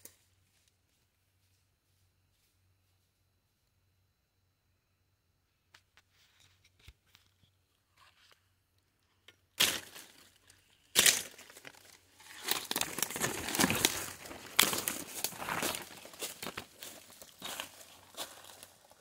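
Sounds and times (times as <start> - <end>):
twigs snapping: 9.6 - 18.6
rustling through undergrowth: 9.6 - 19.0.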